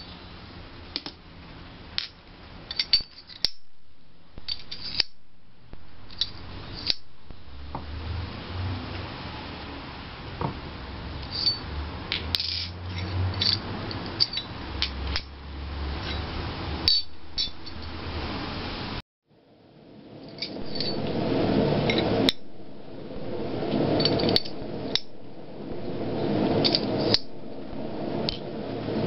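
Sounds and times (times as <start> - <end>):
background noise: 0.0 - 29.0
steel tools clinking on an anvil: 11.3 - 11.6.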